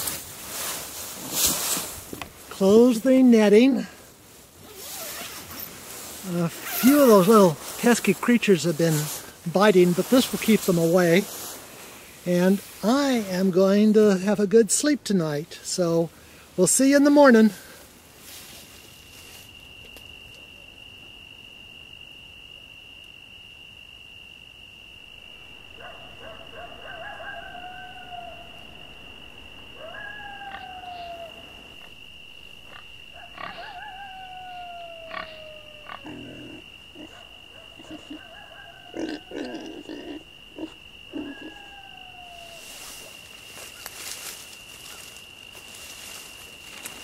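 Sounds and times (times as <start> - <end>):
high-pitched insect drone: 4.6 - 14.1, 21.9 - 47.0
long falling animal calls: 25.2 - 46.3.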